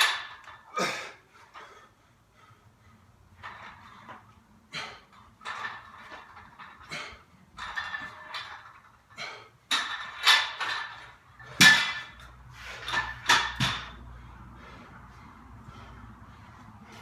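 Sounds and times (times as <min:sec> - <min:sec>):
barbell plates clanking: 0:00.0 - 0:00.7, 0:05.1 - 0:14.0.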